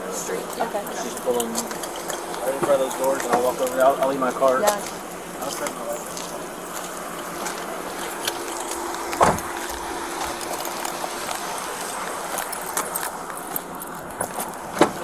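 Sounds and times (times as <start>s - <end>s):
road noise rushing: 0.0s - 15.0s.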